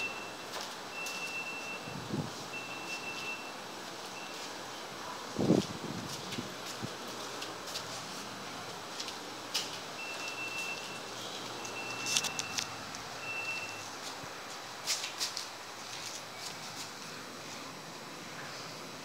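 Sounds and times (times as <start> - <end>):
faint high beeps: 0.0 - 4.8, 10.0 - 14.0
phone being handled: 11.6 - 12.8.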